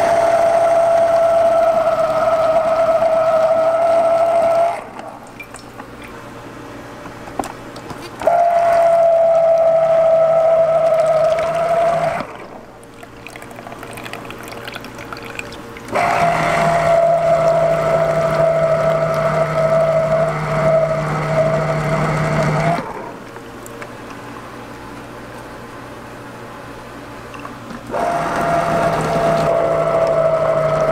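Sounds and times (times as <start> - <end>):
citrus juicer motor humming: 0.0 - 5.9, 7.0 - 24.5, 27.6 - 30.9
juice pouring: 8.5 - 22.9.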